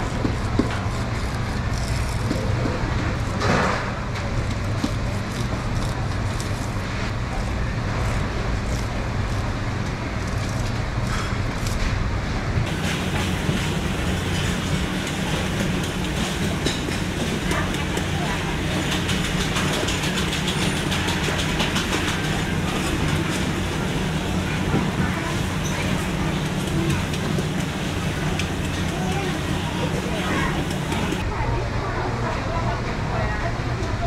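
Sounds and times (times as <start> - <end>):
low mechanical hum: 0.0 - 34.0.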